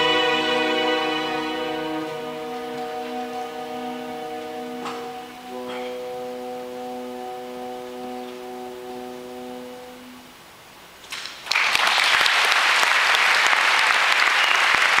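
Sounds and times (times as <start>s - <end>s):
orchestra holding final chord: 0.0s - 10.2s
audience applause: 11.4s - 15.0s.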